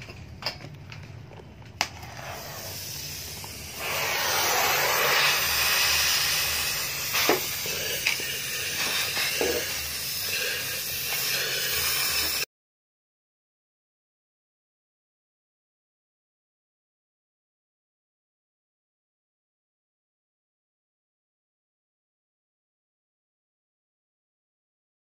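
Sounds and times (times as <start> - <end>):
cutting torch hissing: 1.9 - 12.5.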